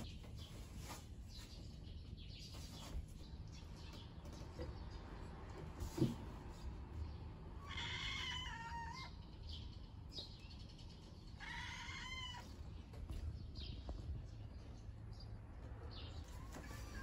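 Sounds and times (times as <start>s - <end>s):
cat meowing: 7.6s - 9.2s, 11.4s - 12.6s.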